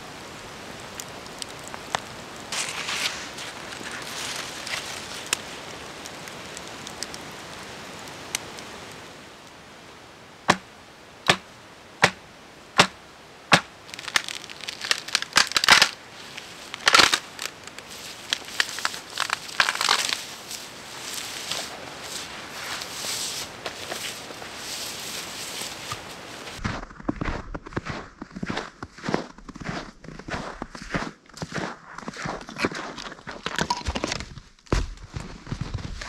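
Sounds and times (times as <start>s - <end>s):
snowy branches crunching and rustling: 0.0s - 9.2s, 12.8s - 33.6s
campfire crackling: 0.0s - 26.6s
sharp wooden knocks: 11.3s - 12.2s, 12.8s - 13.7s
wood breaking with a crack: 12.8s - 20.5s.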